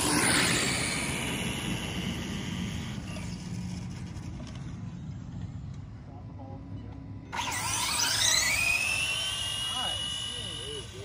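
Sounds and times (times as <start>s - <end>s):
radio-controlled car motor: 0.0s - 4.5s, 7.4s - 11.0s
low steady rumble: 0.0s - 7.6s.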